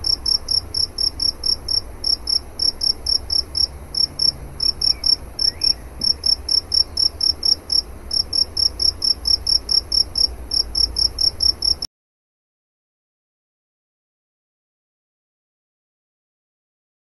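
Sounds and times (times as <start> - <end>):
cricket chirping: 0.0 - 11.9
faint low rumble: 0.0 - 11.9.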